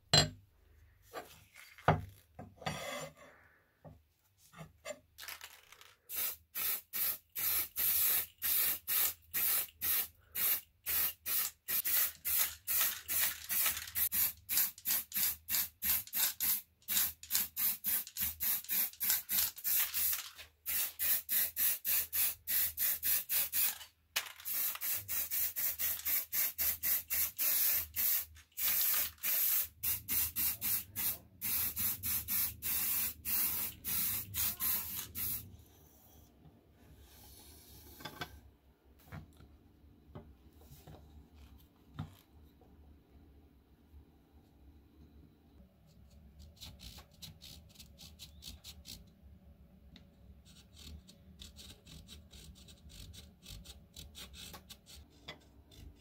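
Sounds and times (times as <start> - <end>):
spray paint can hissing: 6.1 - 23.8, 24.4 - 35.4.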